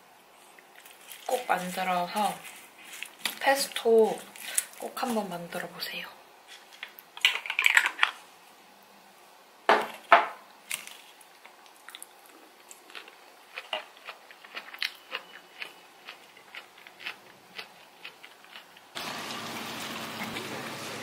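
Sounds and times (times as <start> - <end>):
crunchy chewing: 0.4 - 3.4, 10.7 - 19.0.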